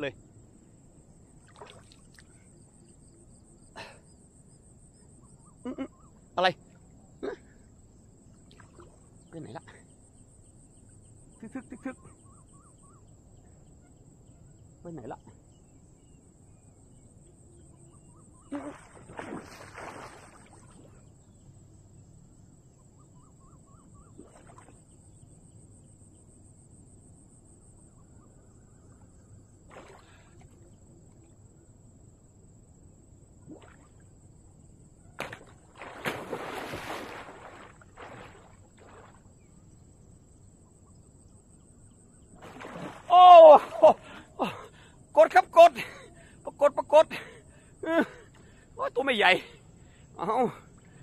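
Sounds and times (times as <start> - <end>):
faint insect buzz: 0.0 - 23.0, 23.7 - 45.2
cast net splashing into water: 1.4 - 2.3, 18.5 - 21.0, 24.2 - 24.8, 29.7 - 30.5, 33.5 - 34.0, 35.2 - 39.3, 42.4 - 44.1
man exclaiming: 43.1 - 48.2, 48.8 - 49.5, 50.2 - 50.6.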